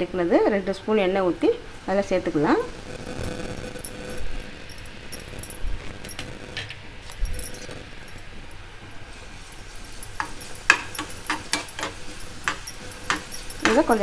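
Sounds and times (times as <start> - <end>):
garlic frying in oil: 9.0 - 14.0
metal spoon clinking against pan: 10.0 - 14.0.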